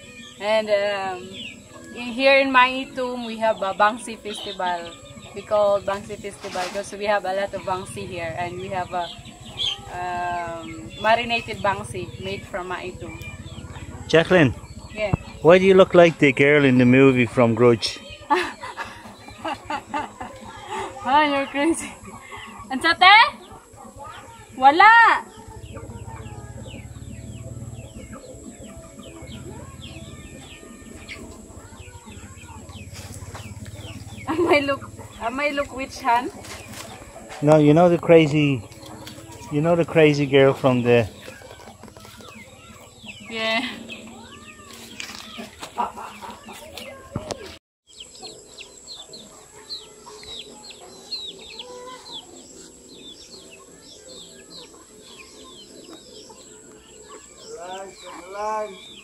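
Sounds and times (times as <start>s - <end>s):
birds chirping: 0.0s - 59.0s
chickens clucking: 0.0s - 59.0s
steady low rumble: 7.5s - 16.8s, 25.4s - 30.6s.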